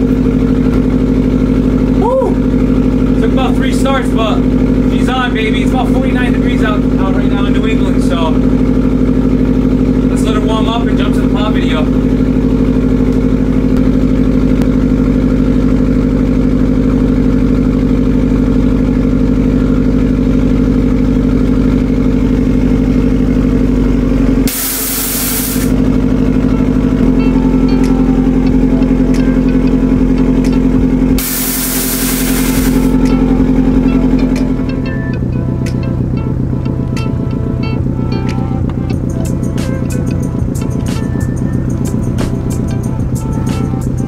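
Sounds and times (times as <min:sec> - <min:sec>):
car engine idling: 0:00.0 - 0:44.0
loud hisses: 0:24.5 - 0:25.8, 0:31.2 - 0:32.9.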